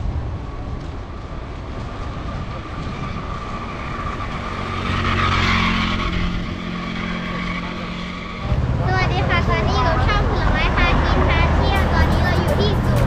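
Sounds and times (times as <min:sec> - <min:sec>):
wind on microphone: 0:00.0 - 0:05.2
vehicle driving past: 0:00.0 - 0:13.0.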